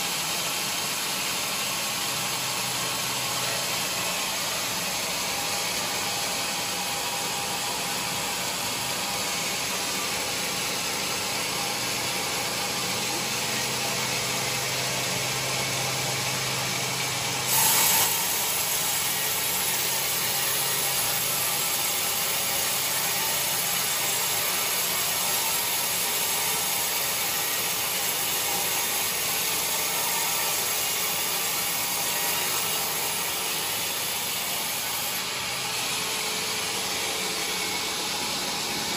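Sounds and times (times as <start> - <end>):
band saw cutting log: 0.0 - 38.9.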